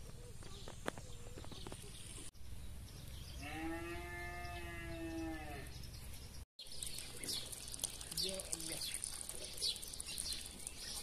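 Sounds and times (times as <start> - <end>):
cow mooing: 3.4 - 5.7.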